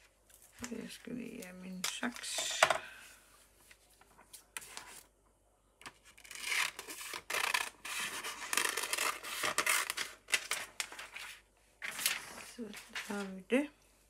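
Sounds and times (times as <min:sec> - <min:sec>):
scissors cutting paper: 0:06.1 - 0:10.5.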